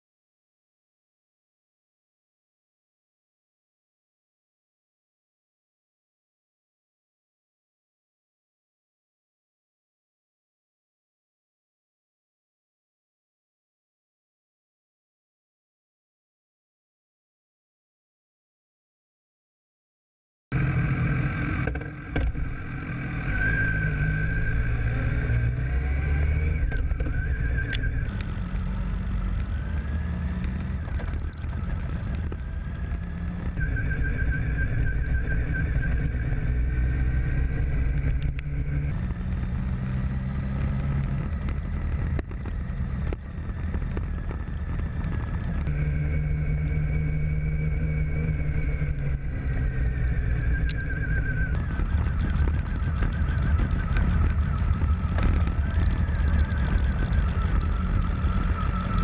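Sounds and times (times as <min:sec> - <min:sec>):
high engine whine: 0:20.5 - 0:59.0
motorcycle engine revving: 0:20.5 - 0:59.0.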